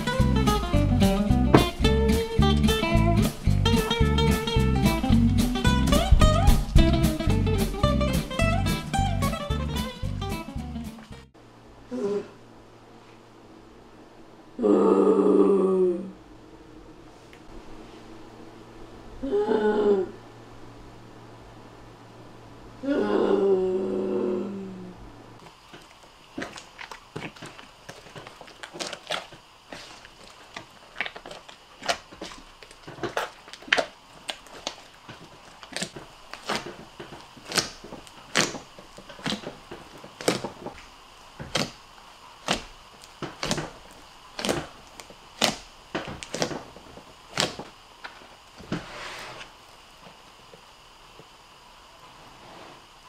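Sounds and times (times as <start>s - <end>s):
slime clicking and popping: 37.4s - 39.5s, 44.4s - 46.6s.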